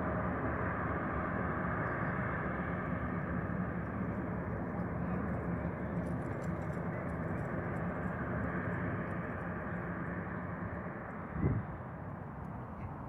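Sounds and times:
low hum: 0.0s - 13.0s
rumble and hiss: 0.0s - 13.0s.

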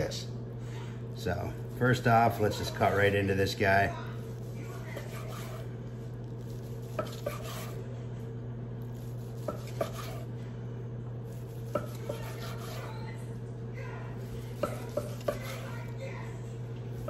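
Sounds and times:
knife sawing through brisket: 1.6s - 7.9s, 8.8s - 10.3s, 11.2s - 13.1s, 14.2s - 16.0s.

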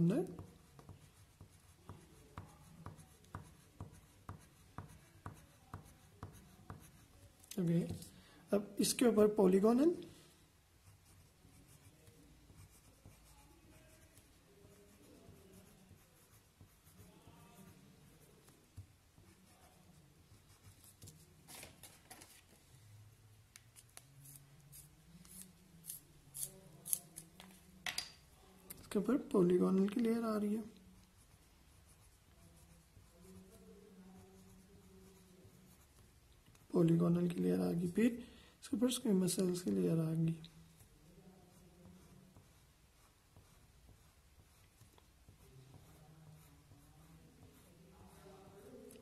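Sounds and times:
pen scratching on paper: 0.2s - 7.2s, 10.8s - 21.2s, 30.0s - 37.0s, 40.8s - 48.9s.

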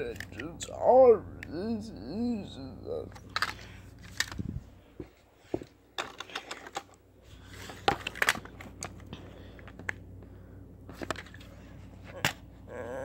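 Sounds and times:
plastic toys clicking and clacking: 3.1s - 4.4s.

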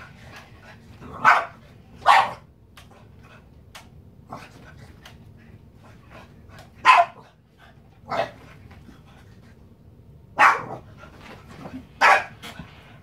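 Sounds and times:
dog barking: 1.2s - 2.4s, 6.8s - 7.2s, 10.4s - 10.8s, 12.0s - 12.4s.

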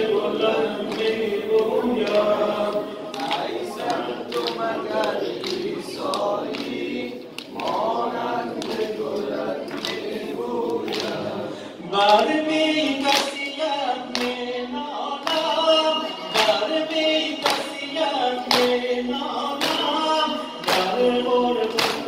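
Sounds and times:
men singing a lament: 0.0s - 22.0s
rhythmic chest-beating strikes: 15.2s - 22.0s.

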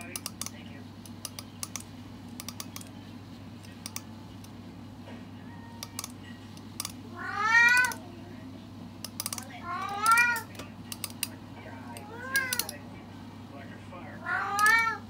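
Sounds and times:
thumb flicking comb teeth: 0.0s - 2.9s, 3.7s - 4.6s, 5.8s - 7.0s, 9.0s - 11.4s
cat meowing: 7.1s - 8.0s, 9.6s - 10.5s, 12.0s - 12.7s, 14.2s - 15.0s.

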